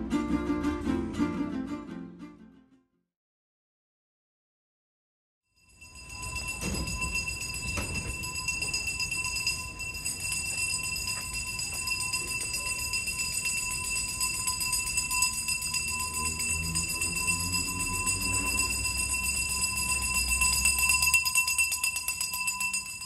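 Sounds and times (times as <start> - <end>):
hand bell ringing: 5.6 - 23.0.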